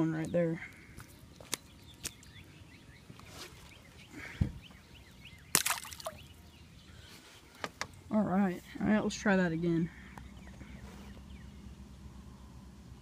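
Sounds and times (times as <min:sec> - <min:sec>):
fish splashing into water: 0:05.5 - 0:06.2.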